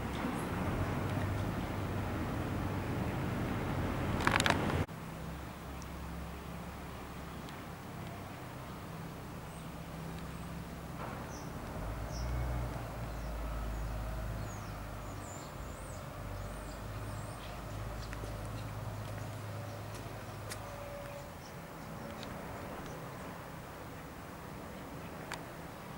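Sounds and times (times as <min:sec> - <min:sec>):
small birds chirping: 0:08.6 - 0:25.9.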